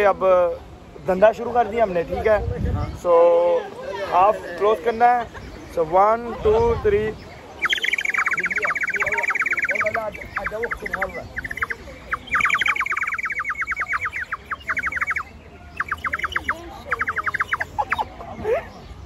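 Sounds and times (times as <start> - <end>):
bird whistles warbling trills: 7.5 - 18.1.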